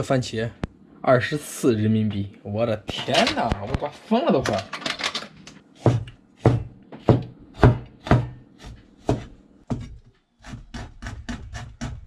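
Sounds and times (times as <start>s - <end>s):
cleaver chopping on plastic board: 5.8s - 9.9s, 10.5s - 12.0s.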